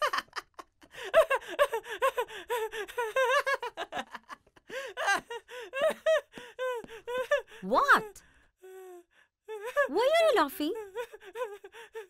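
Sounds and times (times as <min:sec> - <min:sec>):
man laughing hard: 0:00.0 - 0:02.2, 0:02.9 - 0:06.2.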